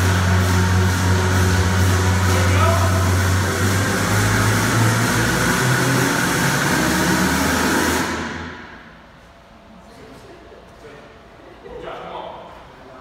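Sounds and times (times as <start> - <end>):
machine humming and hissing: 0.0 - 9.9.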